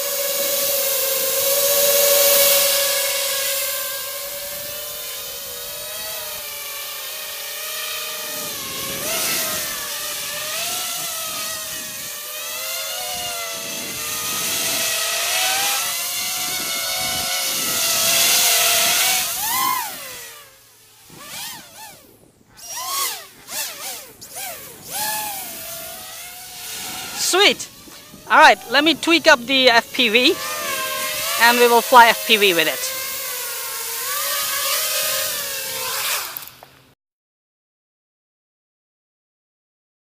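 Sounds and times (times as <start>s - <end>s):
quadcopter motors whining: 0.0s - 36.9s.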